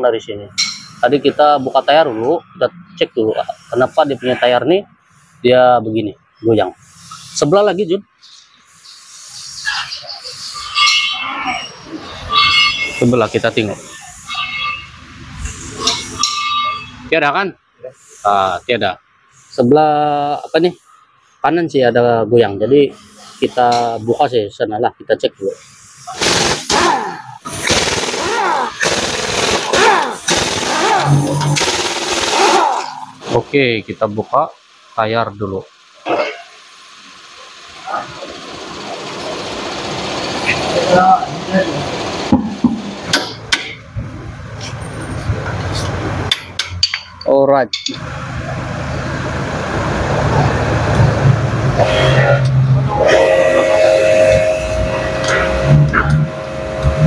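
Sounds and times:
steady mechanical hum: 0:00.0 - 0:57.0
impact wrench hammering and spinning: 0:26.1 - 0:33.2, 0:42.0 - 0:43.9.

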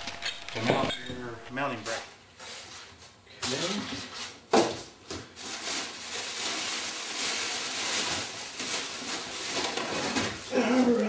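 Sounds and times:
plastic bag crinkling: 0:05.3 - 0:10.5.

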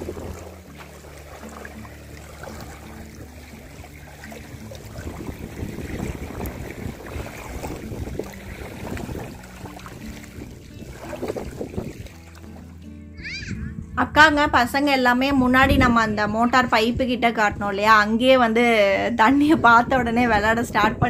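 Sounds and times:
wind on microphone: 0:00.0 - 0:01.6, 0:02.4 - 0:12.6, 0:13.4 - 0:21.0
waves lapping on pebbles: 0:00.0 - 0:12.8.

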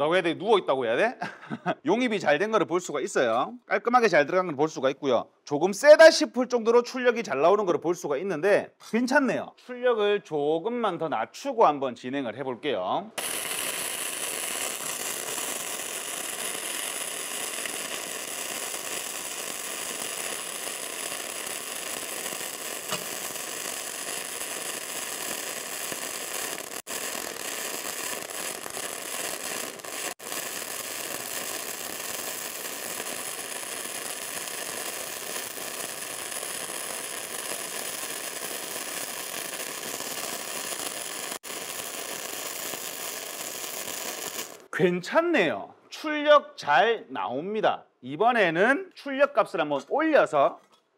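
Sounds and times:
welder arc crackling sizzle: 0:13.2 - 0:44.7.

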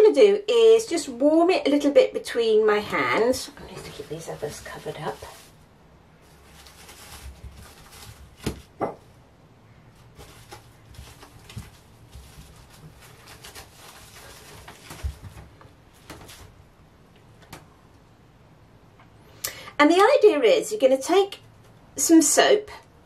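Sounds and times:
cling film crinkling: 0:03.2 - 0:05.6, 0:06.2 - 0:08.8, 0:10.0 - 0:16.6
objects knocking on wooden table: 0:08.4 - 0:09.1.

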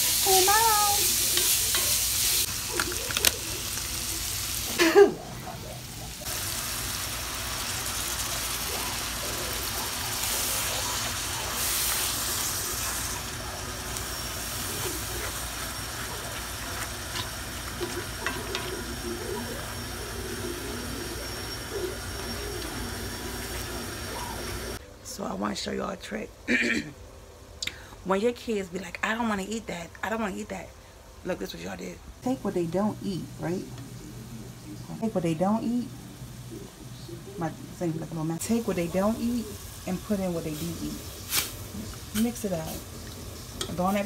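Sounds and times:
meat sizzling in a skillet: 0:00.0 - 0:24.8, 0:35.0 - 0:44.0.

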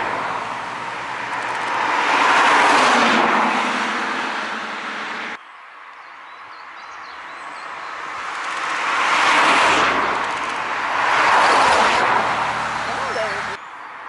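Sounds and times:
cars driving past: 0:00.0 - 0:05.4, 0:07.1 - 0:13.6.

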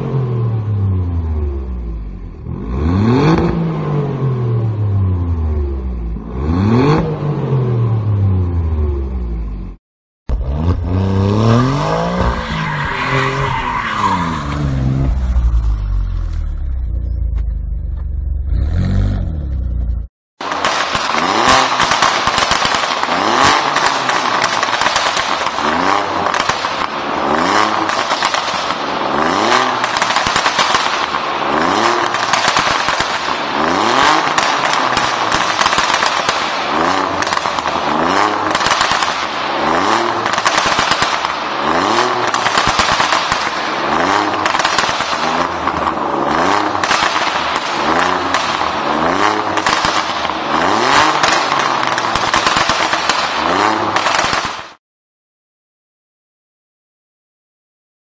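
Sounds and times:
car engine revving: 0:00.0 - 0:20.1, 0:33.5 - 0:52.7
exhaust pops and crackles: 0:20.4 - 0:54.8.

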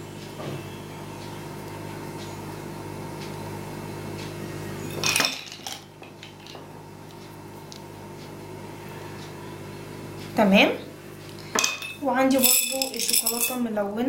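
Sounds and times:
kitchenware clattering: 0:05.0 - 0:06.6, 0:11.5 - 0:13.7.

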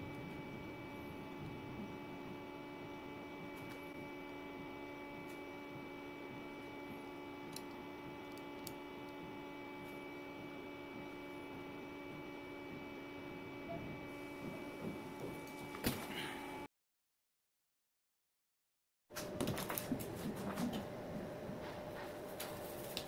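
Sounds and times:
steady tonal hum: 0:00.0 - 0:16.7.

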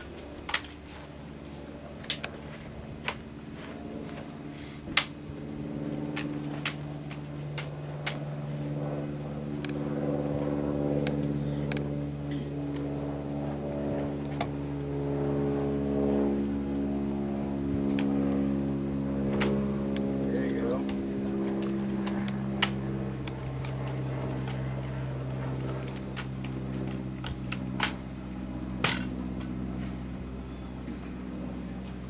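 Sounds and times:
steady motor drone: 0:00.0 - 0:32.0
rifle clacks and slaps: 0:06.1 - 0:08.2, 0:25.6 - 0:28.0.

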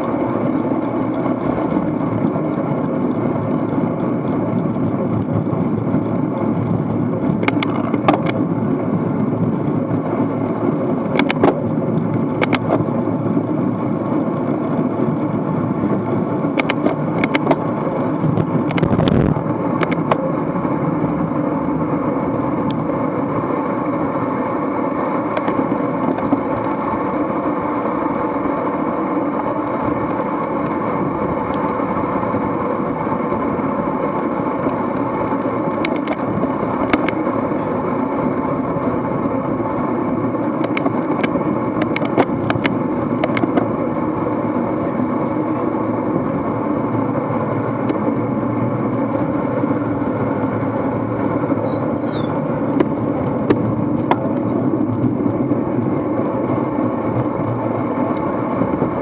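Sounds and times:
bicycle tyre and drivetrain noise: 0:00.0 - 0:59.0
wind rush on microphone: 0:00.0 - 0:59.0.

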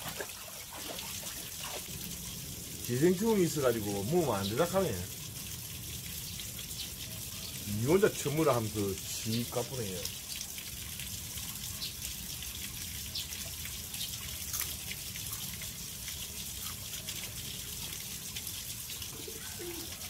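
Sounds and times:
running water: 0:00.0 - 0:20.0.

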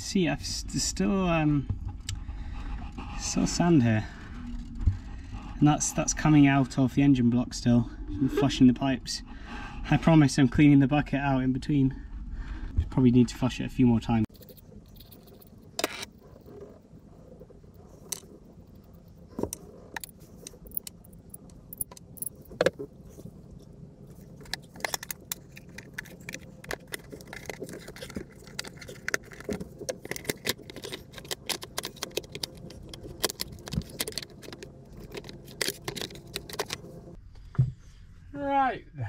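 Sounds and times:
faint low hum: 0:00.0 - 0:39.0
metallic clinks and rattles of tools: 0:14.3 - 0:16.6, 0:19.4 - 0:23.2, 0:24.1 - 0:36.9.

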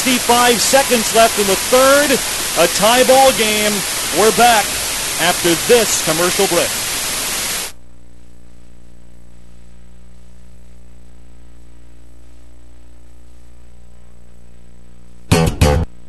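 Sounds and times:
loud burst of other audio: 0:00.0 - 0:07.8
buzzy electrical hum: 0:00.0 - 0:16.0.

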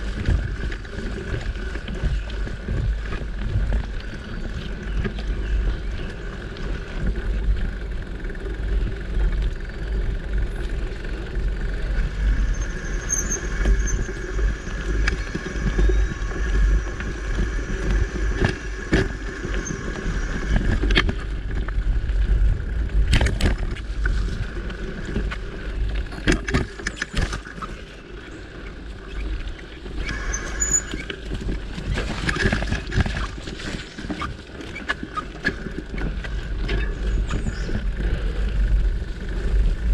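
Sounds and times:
bike rattling over bumps: 0:00.0 - 0:39.9
tyres rumbling on dirt: 0:00.0 - 0:39.9
wind on microphone: 0:00.0 - 0:39.9.

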